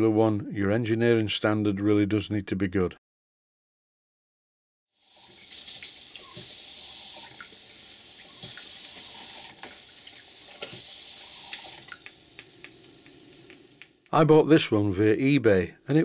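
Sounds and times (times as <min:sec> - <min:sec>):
steam pump hissing: 0:05.0 - 0:14.1.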